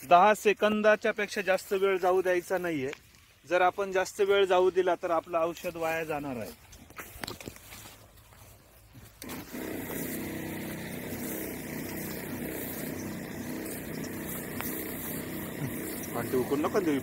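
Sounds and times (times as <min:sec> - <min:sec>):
battery sprayer pump running: 0:08.9 - 0:17.0.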